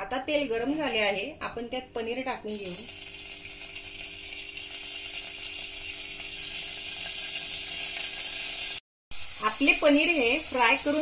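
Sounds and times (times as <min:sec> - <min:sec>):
cheese sizzling in hot oil: 0:02.5 - 0:11.0.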